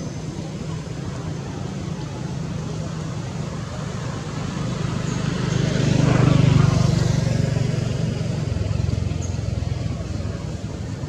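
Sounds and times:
vehicle engine passing: 0:03.2 - 0:11.0.

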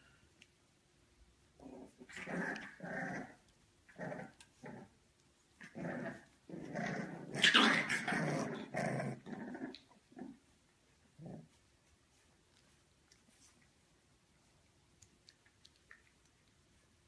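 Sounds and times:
puppies growling: 0:01.6 - 0:05.0, 0:05.6 - 0:10.5.

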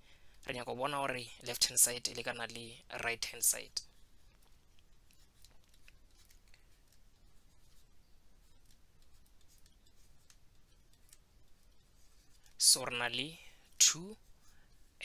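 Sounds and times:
stylus tapping on tablet screen: 0:04.4 - 0:12.4.

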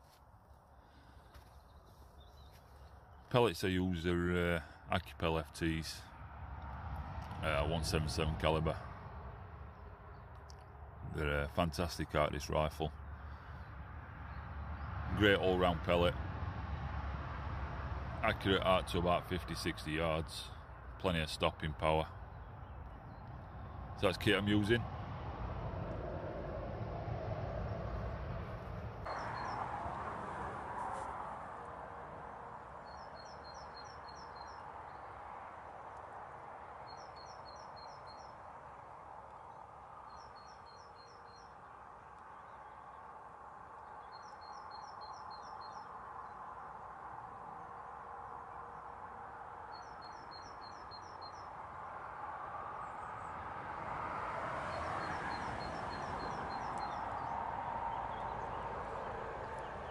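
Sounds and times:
outdoor background noise: 0:00.0 - 0:59.9
small songbird singing: 0:29.0 - 0:29.6, 0:32.8 - 0:35.1, 0:36.8 - 0:38.4, 0:39.3 - 0:43.1, 0:43.7 - 0:46.5, 0:49.6 - 0:51.6, 0:54.7 - 0:58.6.

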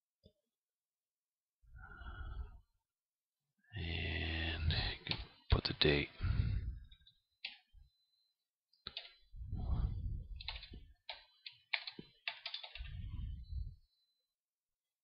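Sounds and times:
keyboard keys clicking: 0:08.9 - 0:09.2, 0:10.4 - 0:12.9
low muffled rumble: 0:09.4 - 0:10.4.

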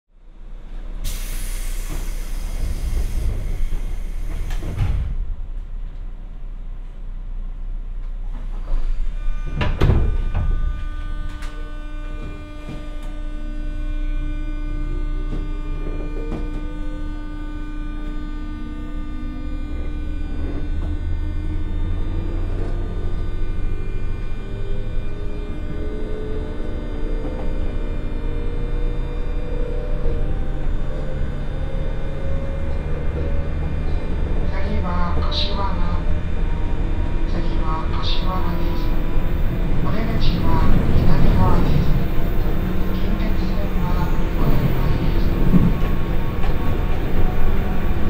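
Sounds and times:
traction motor hum: 0:08.0 - 0:48.0.

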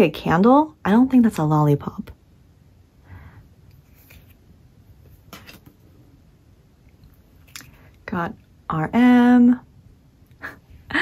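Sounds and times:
paper cards brushing: 0:03.7 - 0:04.4.

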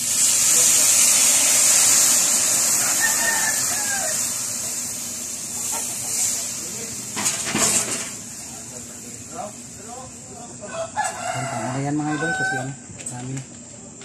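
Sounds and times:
liquid sizzling in a wok: 0:00.0 - 0:12.9
rooster crowing: 0:02.7 - 0:04.5, 0:10.6 - 0:12.8.

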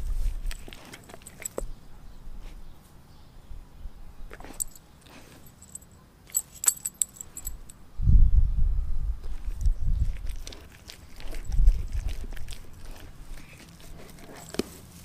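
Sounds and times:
dog licking and chewing: 0:00.4 - 0:01.6, 0:09.4 - 0:15.0
metal collar tags jingling: 0:00.5 - 0:01.6, 0:04.4 - 0:07.8.

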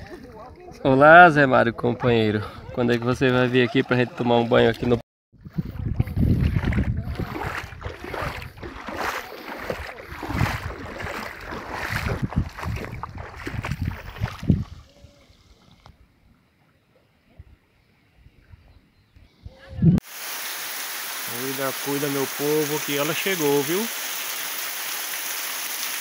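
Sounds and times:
water splashing and sloshing: 0:02.0 - 0:16.0, 0:20.0 - 0:26.0
wind buffeting microphone: 0:05.4 - 0:15.0.

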